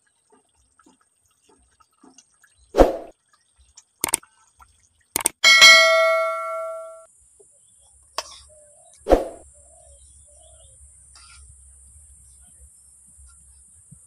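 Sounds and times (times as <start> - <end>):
ladle ringing on metal pot: 5.4 - 7.1.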